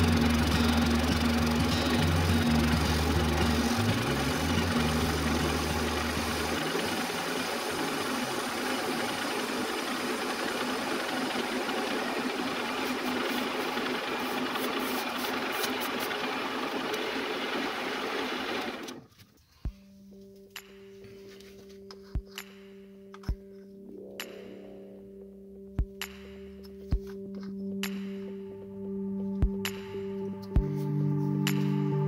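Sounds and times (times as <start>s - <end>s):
metal lathe running: 0.0s - 19.0s.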